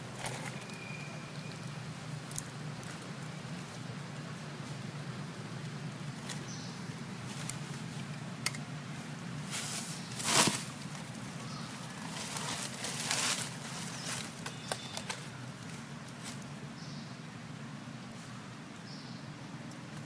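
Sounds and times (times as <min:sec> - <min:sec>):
dry leaves rustling and crackling: 0:08.9 - 0:16.6.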